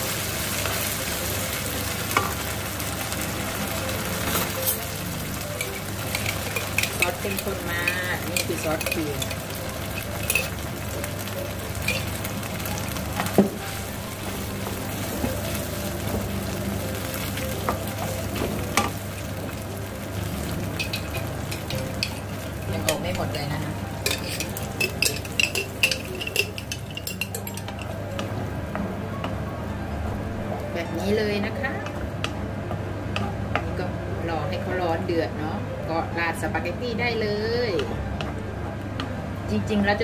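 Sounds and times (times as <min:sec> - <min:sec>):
sauce sizzling in a frying pan: 0:00.0 - 0:28.0.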